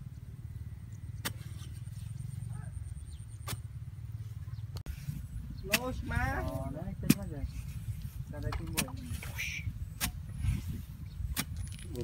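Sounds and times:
steady low rumble: 0.0 - 12.0
shovel striking earth: 1.2 - 2.1, 3.3 - 3.7, 4.9 - 12.0.

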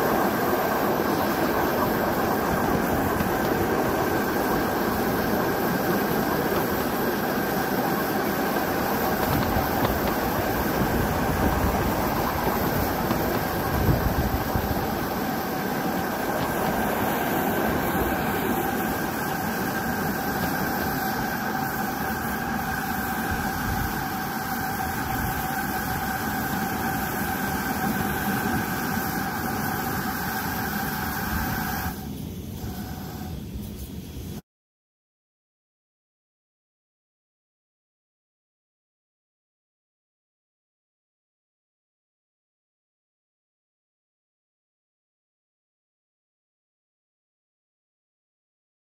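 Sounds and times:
wheels clattering over rail joints: 0.0 - 30.2
miniature steam train rumbling: 0.0 - 34.4
steady whine: 0.0 - 34.4.

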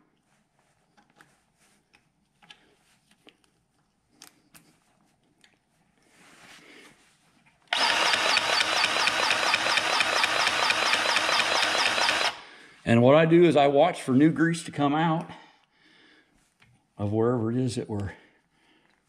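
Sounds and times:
cordless grease gun motor: 7.7 - 12.4.

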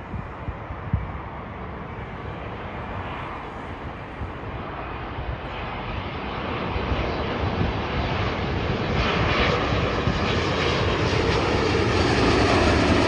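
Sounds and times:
jet airliner engines rushing: 0.0 - 13.0.

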